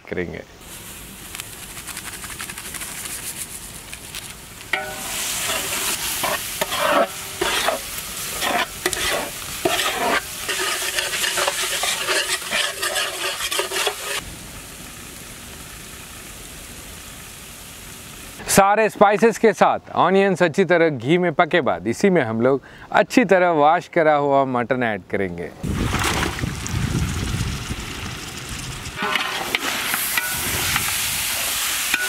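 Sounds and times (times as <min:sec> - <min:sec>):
onions sizzling in oil: 0:00.6 - 0:02.0, 0:03.2 - 0:18.5, 0:26.6 - 0:32.0
spatula scraping pot: 0:04.8 - 0:14.2.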